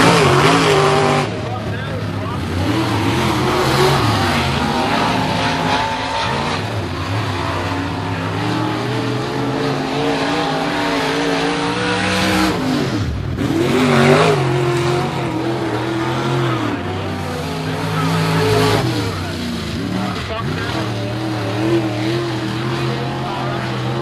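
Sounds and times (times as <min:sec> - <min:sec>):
race car engines running hard: 0:00.0 - 0:24.0.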